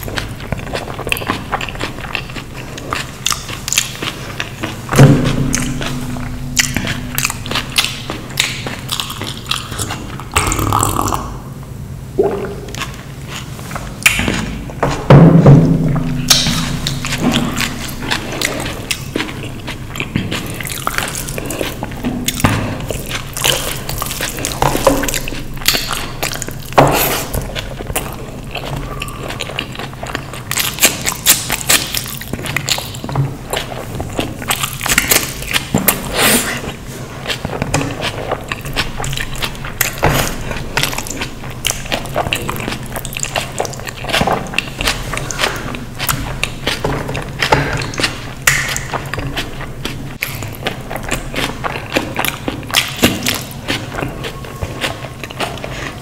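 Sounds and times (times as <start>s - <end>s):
person chewing and biting food: 0.0s - 11.6s, 12.2s - 56.0s
steady low hum: 0.0s - 56.0s.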